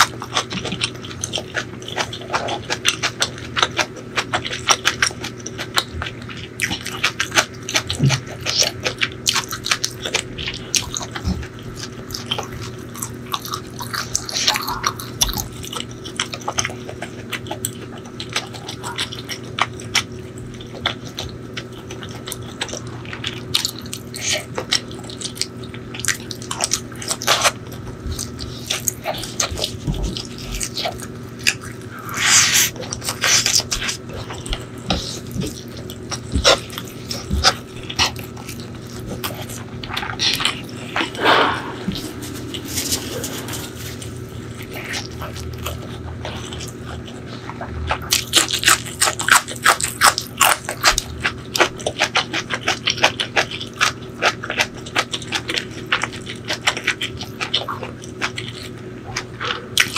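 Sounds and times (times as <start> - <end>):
wet chewing: 0.0 - 59.9.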